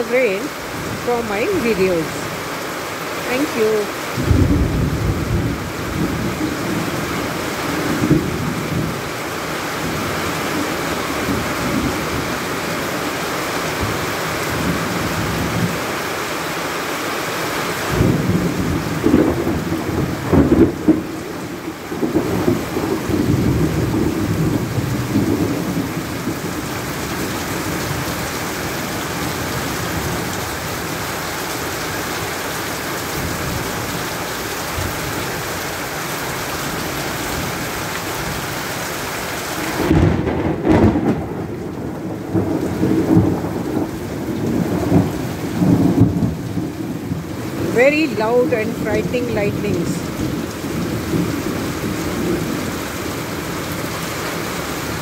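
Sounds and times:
heavy rain on pavement and roof: 0:00.0 - 0:55.0
thunder rumbling: 0:04.2 - 0:09.0, 0:17.9 - 0:31.0, 0:39.7 - 0:52.9.

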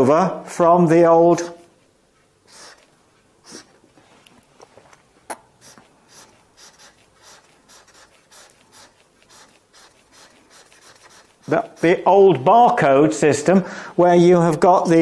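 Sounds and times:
marker drawing on whiteboard: 0:02.5 - 0:03.7, 0:05.6 - 0:12.6.

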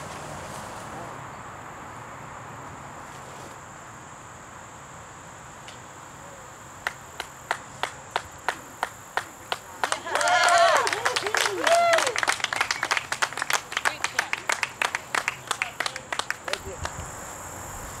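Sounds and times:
insects buzzing: 0:00.0 - 0:18.0
person clapping: 0:06.8 - 0:17.0.

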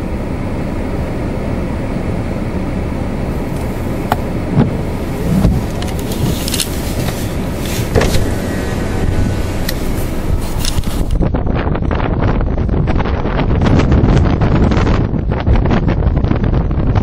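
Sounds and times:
wind buffeting a car: 0:00.0 - 0:17.0
snow and hail striking car: 0:03.6 - 0:11.2.

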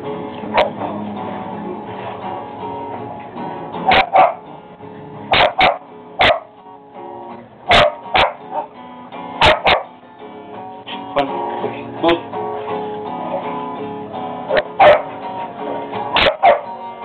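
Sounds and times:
acoustic guitar music: 0:00.0 - 0:17.0
dog barking: 0:00.5 - 0:00.8, 0:03.9 - 0:04.4, 0:05.3 - 0:06.5, 0:07.7 - 0:08.8, 0:09.4 - 0:09.9, 0:14.5 - 0:15.2, 0:16.1 - 0:16.7.

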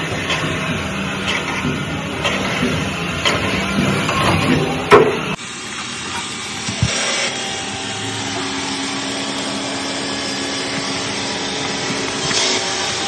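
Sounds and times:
metal-cutting tool on steel: 0:05.7 - 0:13.0.

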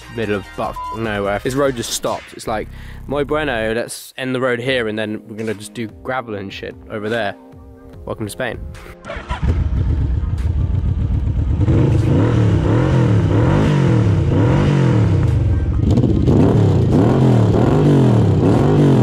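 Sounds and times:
motorcycle engine revving: 0:09.1 - 0:19.0.

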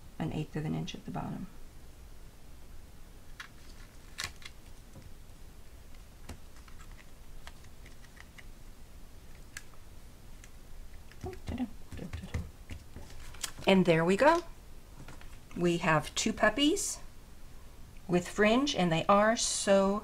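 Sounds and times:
paper tapping and rubbing: 0:11.0 - 0:13.7.

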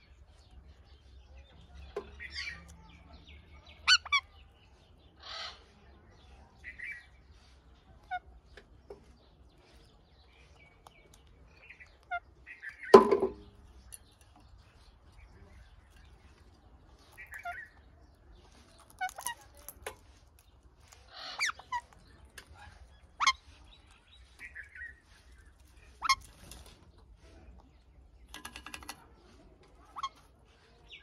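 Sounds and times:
parakeets squawking and chirping: 0:03.7 - 0:04.5, 0:05.1 - 0:05.8, 0:17.0 - 0:20.2, 0:20.9 - 0:26.8, 0:29.7 - 0:30.8.

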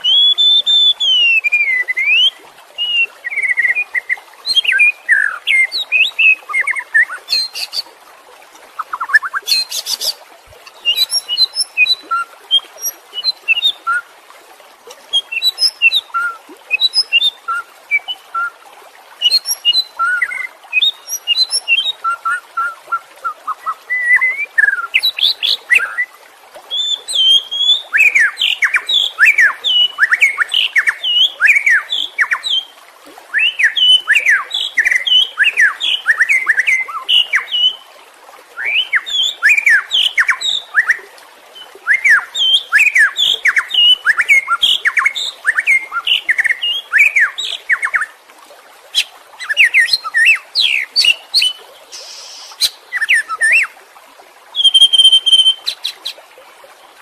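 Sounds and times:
held high bird whistle: 0:54.6 - 0:55.8
songbird whistling runs: 0:54.6 - 0:55.8.

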